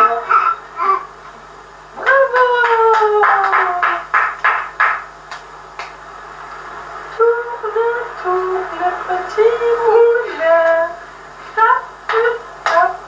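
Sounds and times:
hand claps: 2.0 - 6.0, 12.1 - 12.9
high voice singing: 7.1 - 11.0.

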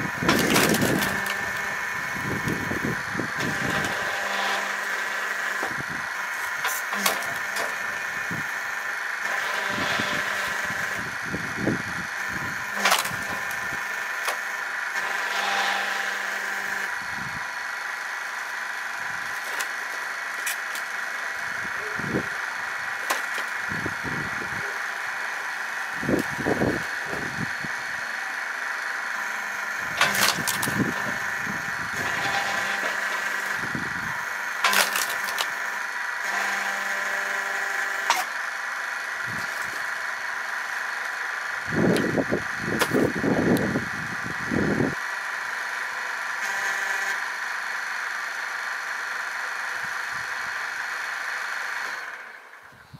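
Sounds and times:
machine motor humming: 0.0 - 52.8
wood knocking and cracking: 23.0 - 23.5.

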